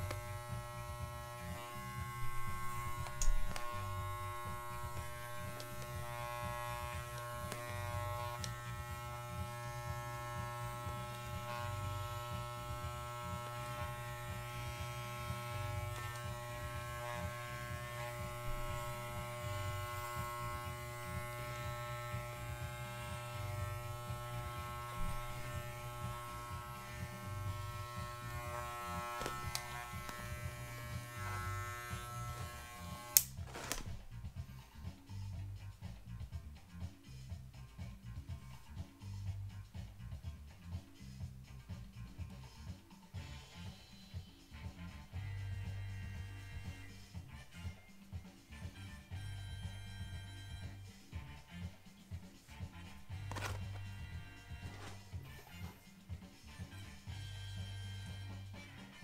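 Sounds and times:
electric clippers humming: 0:00.0 - 0:34.0, 0:44.8 - 0:47.7, 0:48.7 - 0:51.7, 0:52.6 - 0:55.8, 0:56.5 - 0:59.0.

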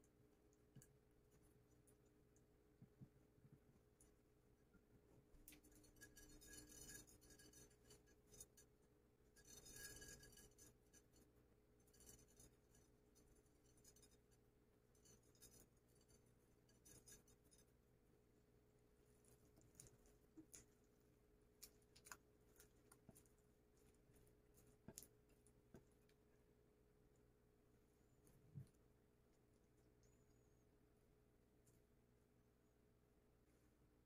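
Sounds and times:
seeds ticking onto glass: 0:19.2 - 0:26.4.

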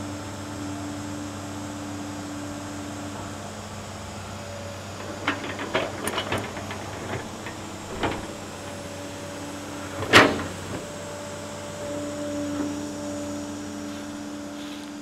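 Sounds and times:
excavator diesel engine running: 0:00.0 - 0:15.0
loud clunk: 0:05.0 - 0:09.1, 0:09.9 - 0:10.9.

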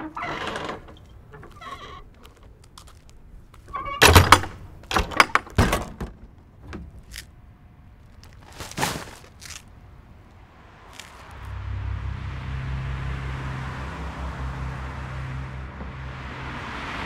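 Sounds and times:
bag dropped into bin: 0:08.4 - 0:09.6.

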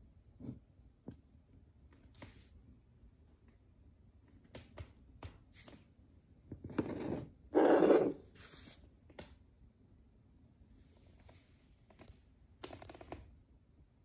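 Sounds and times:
glass scraping on wooden floor: 0:06.7 - 0:08.3.

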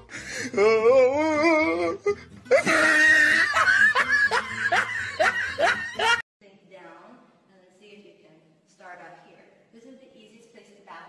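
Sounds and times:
person laughing hard: 0:01.2 - 0:06.2.

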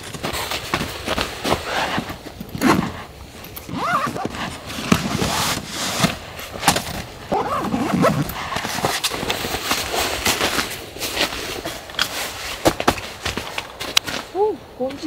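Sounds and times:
footsteps on snow: 0:00.0 - 0:06.8
nylon pouches rustling: 0:00.0 - 0:14.4.

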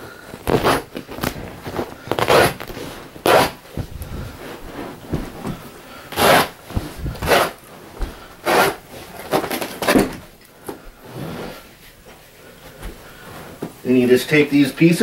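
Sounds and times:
razor knife cutting carpet: 0:02.1 - 0:07.6, 0:08.4 - 0:09.4.

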